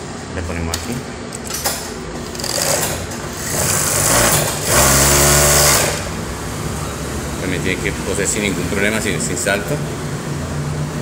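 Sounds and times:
industrial sewing machine stitching: 0:02.4 - 0:06.2.

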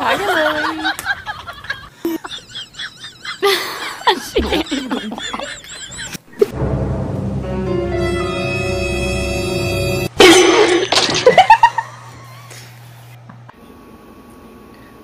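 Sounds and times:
people laughing: 0:00.0 - 0:06.5, 0:11.2 - 0:12.6.

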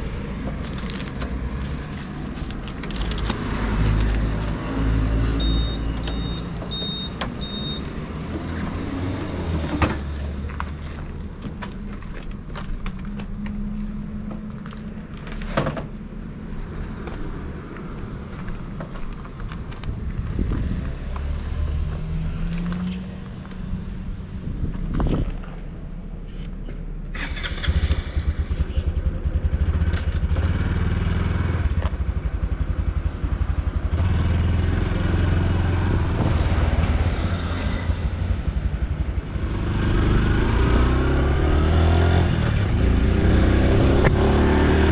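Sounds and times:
short high beeps: 0:05.4 - 0:07.9
motorcycle engine running: 0:27.7 - 0:36.8.

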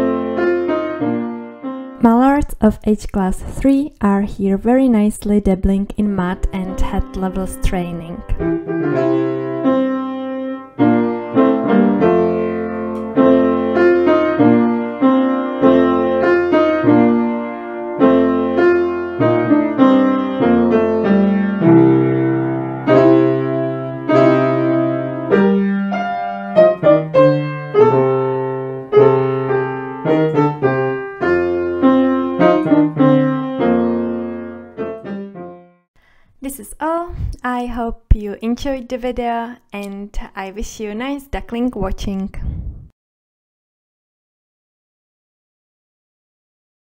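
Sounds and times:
piano music: 0:00.0 - 0:02.6, 0:05.5 - 0:35.9.

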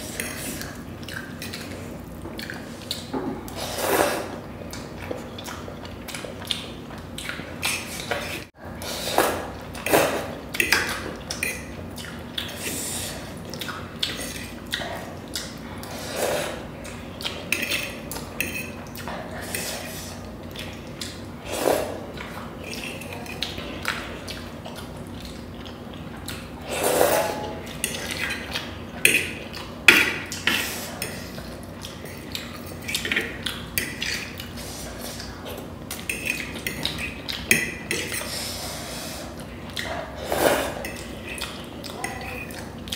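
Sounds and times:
slurping: 0:00.0 - 0:06.6, 0:07.2 - 0:28.7, 0:29.4 - 0:42.9
chewing: 0:00.2 - 0:08.5, 0:09.6 - 0:38.5, 0:39.2 - 0:42.9
fork scraping on plate: 0:18.4 - 0:18.8, 0:26.7 - 0:28.4.

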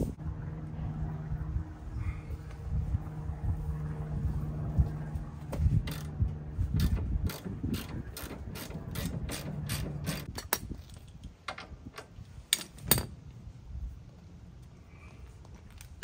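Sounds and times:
ratchet wrench clicking: 0:06.8 - 0:10.3.

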